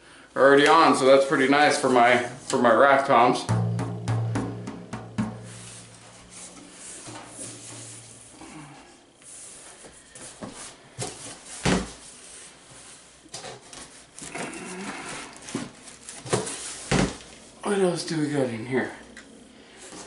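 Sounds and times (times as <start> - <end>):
loud thump: 3.5 - 8.7
cardboard and packing rustling: 9.3 - 17.5.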